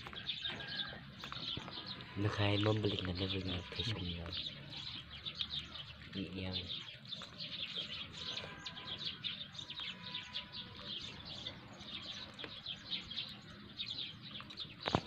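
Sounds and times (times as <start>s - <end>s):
flock of small birds chirping: 0.0s - 15.0s.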